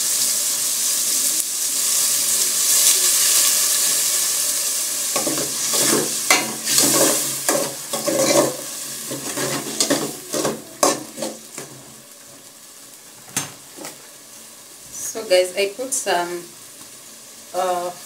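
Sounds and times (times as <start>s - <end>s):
water sizzling in hot pot: 0.0s - 18.0s
metal ladle scraping pot: 5.2s - 11.9s.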